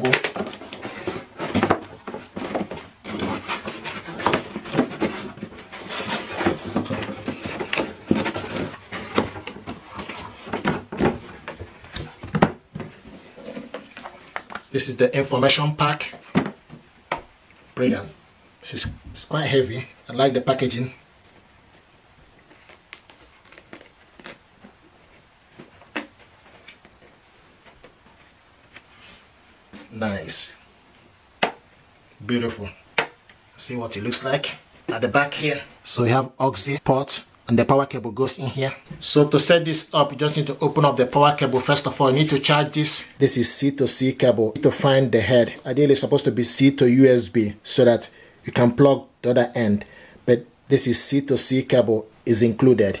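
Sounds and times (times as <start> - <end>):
cardboard and paper rustling: 0.0 - 14.7, 20.6 - 30.0.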